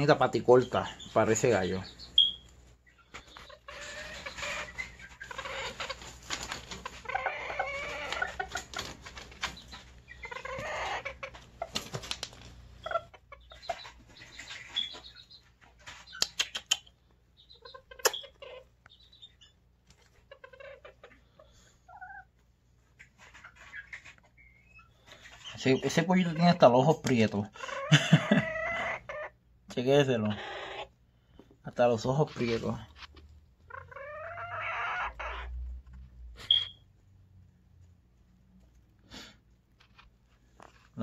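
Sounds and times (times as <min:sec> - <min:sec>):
chickens clucking: 0:00.0 - 0:41.0
clicks and rustles: 0:11.3 - 0:12.6.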